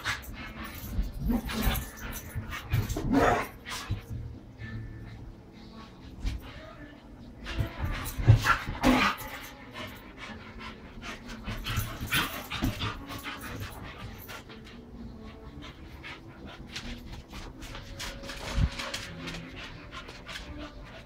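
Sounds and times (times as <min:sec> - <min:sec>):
dogs panting: 0:00.0 - 0:21.0
dogs scuffling: 0:11.1 - 0:21.0.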